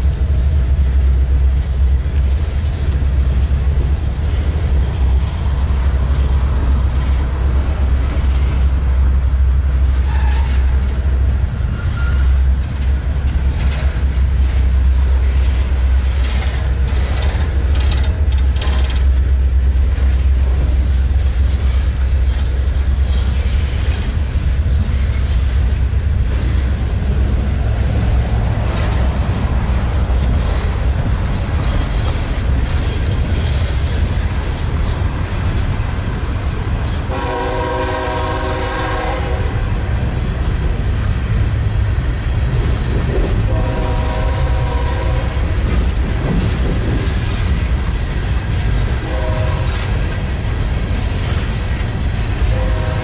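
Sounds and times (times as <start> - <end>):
clacks at rail joints: 0.0 - 53.0
train wheels rumbling on rails: 0.0 - 53.0
locomotive horn blasts: 37.1 - 39.8, 43.5 - 45.4, 49.0 - 49.9, 52.4 - 53.0.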